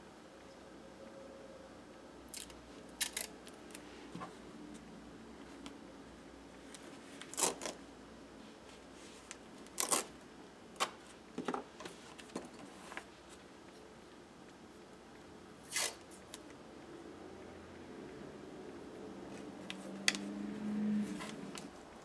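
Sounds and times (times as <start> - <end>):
tape rasping and rustling: 6.7 - 7.8, 8.7 - 10.2, 15.6 - 16.4.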